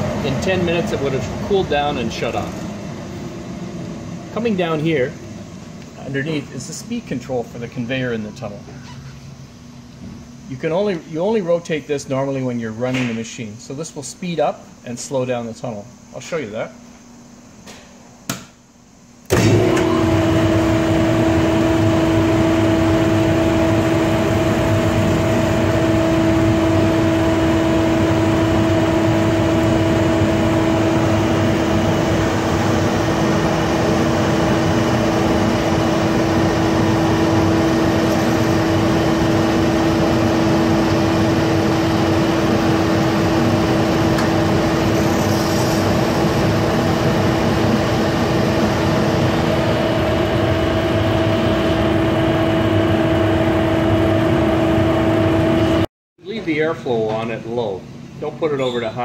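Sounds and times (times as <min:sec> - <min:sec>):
machine blower and conveyor humming: 0:00.0 - 0:16.6, 0:19.2 - 0:56.7.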